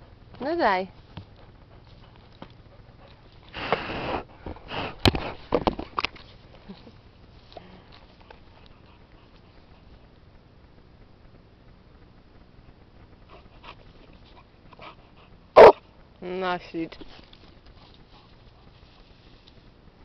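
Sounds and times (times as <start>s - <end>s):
dog sniffing and snuffling: 0.9s - 10.2s, 13.2s - 15.8s, 16.9s - 19.8s.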